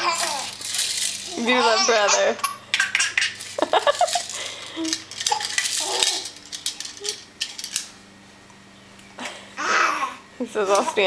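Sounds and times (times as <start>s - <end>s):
plastic toys clattering: 0.0s - 7.9s.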